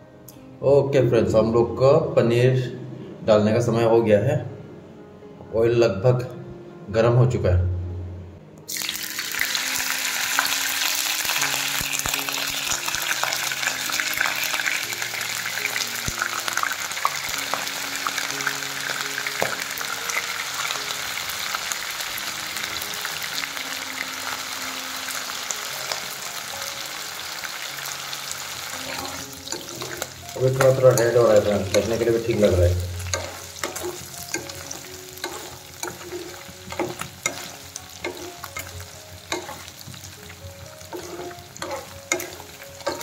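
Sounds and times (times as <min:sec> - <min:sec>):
cheese sizzling in hot oil: 0:08.7 - 0:43.0.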